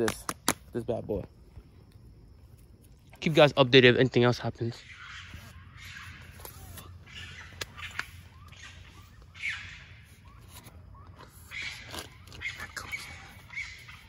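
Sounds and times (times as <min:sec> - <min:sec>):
animals crying and squabbling: 0:04.8 - 0:14.0.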